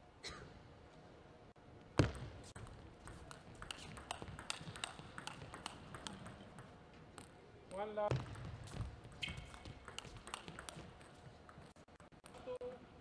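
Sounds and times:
table tennis ball clicking: 2.6s - 7.3s, 9.5s - 12.4s.

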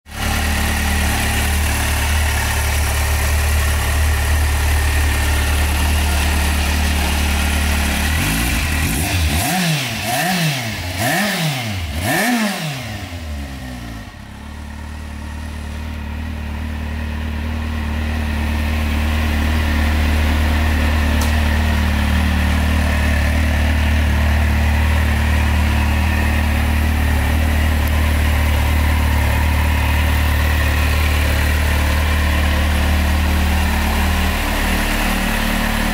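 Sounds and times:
motorcycle engine idling: 0.1s - 12.2s, 12.8s - 35.9s.

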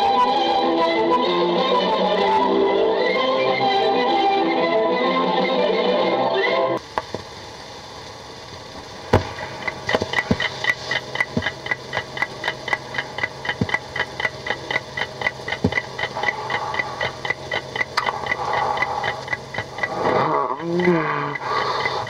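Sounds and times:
music cue: 0.0s - 6.8s
clicks and pops: 6.8s - 7.3s, 8.8s - 22.0s
steady hiss: 6.8s - 22.0s
clock ticking: 9.2s - 22.0s.

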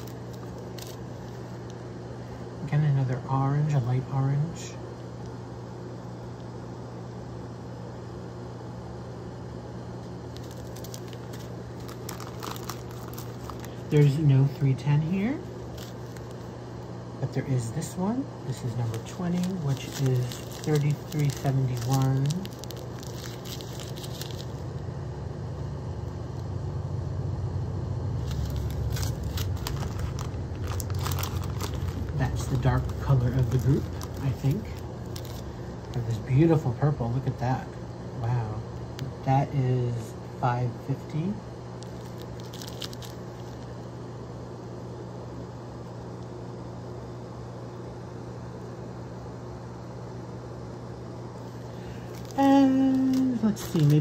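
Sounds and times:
plastic bag crinkling: 0.0s - 1.9s, 10.3s - 14.2s, 15.1s - 16.5s, 18.5s - 24.8s, 28.2s - 36.2s, 41.8s - 43.8s, 51.4s - 54.0s
low machine hum: 0.0s - 54.0s
low rumble: 26.4s - 36.0s.

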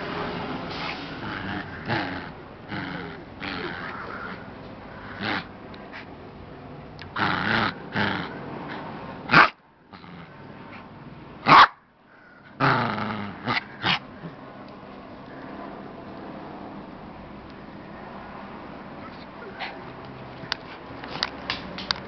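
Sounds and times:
small dog growling: 1.0s - 5.5s, 7.0s - 8.9s, 9.9s - 10.4s, 12.6s - 14.4s.

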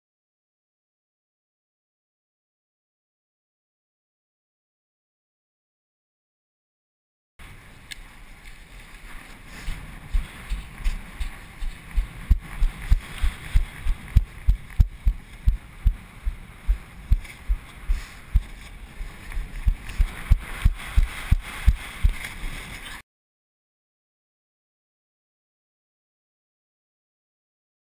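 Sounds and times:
wind hiss on microphone: 7.4s - 23.0s
footsteps on sand: 8.5s - 22.9s.

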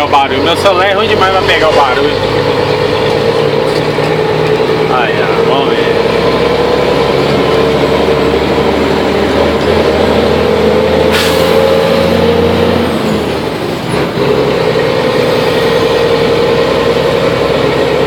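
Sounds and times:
truck diesel engine under load: 0.0s - 18.0s.

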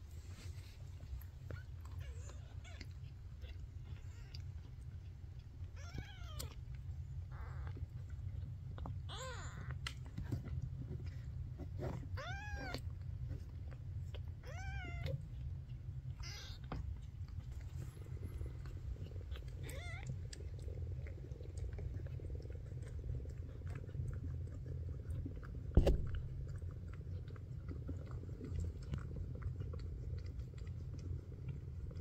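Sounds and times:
low steady rumble: 0.0s - 32.0s
soft mouth clicks and smacks: 1.0s - 11.3s
kitten mewing: 19.2s - 20.3s
sharp thump: 25.8s - 26.2s.

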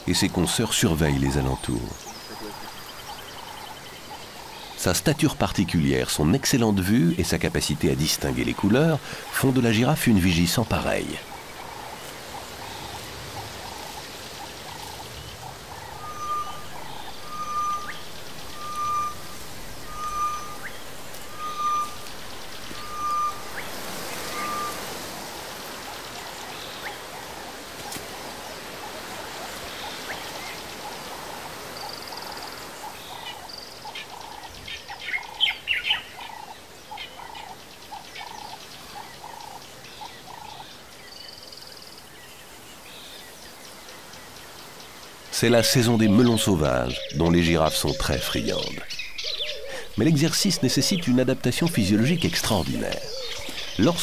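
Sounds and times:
low pulsing animal calls: 7.4s - 40.7s, 45.3s - 54.0s.

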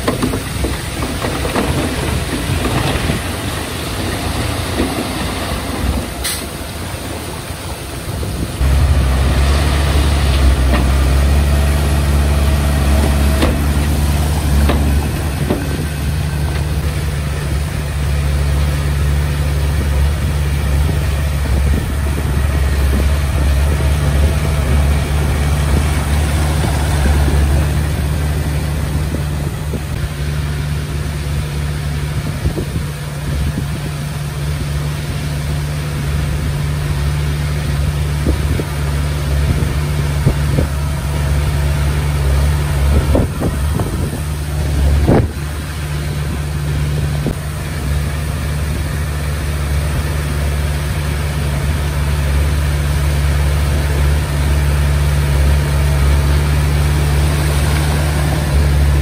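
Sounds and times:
bulldozer diesel engine: 0.0s - 59.0s
sharp knocks: 12.8s - 16.7s.

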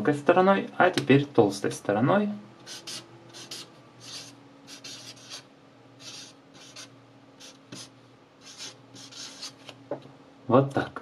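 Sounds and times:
faint steady hum: 0.0s - 11.0s
marker hissing across paper: 2.6s - 9.8s.

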